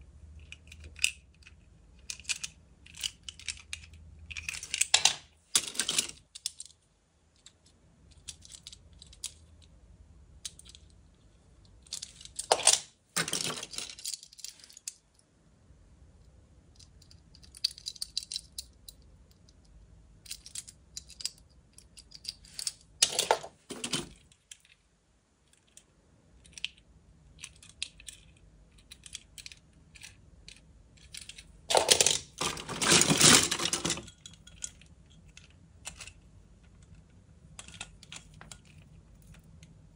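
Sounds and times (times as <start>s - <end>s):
toy cars clattering in a box: 31.1s - 34.8s.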